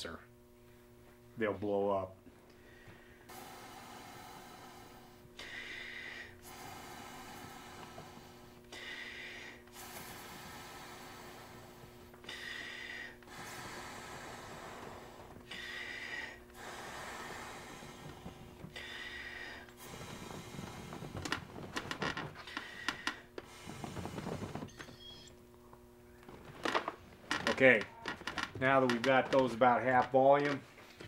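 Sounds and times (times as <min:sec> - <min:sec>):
person breathing in: 0:02.5 - 0:21.3, 0:22.4 - 0:24.6
blowing air into tube: 0:03.3 - 0:24.7.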